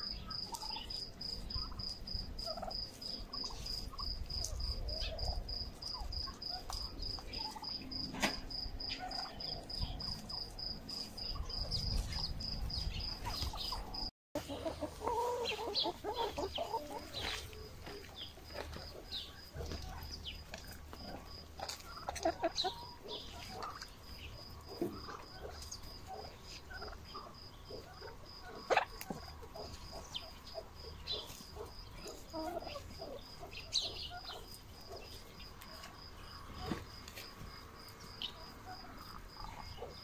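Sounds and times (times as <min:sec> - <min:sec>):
crickets chirping: 0:00.0 - 0:40.0
hens clucking: 0:00.0 - 0:40.0
turkeys gobbling: 0:00.5 - 0:00.9, 0:02.4 - 0:04.6, 0:06.0 - 0:07.7, 0:08.9 - 0:09.4, 0:13.2 - 0:35.1, 0:38.6 - 0:40.0.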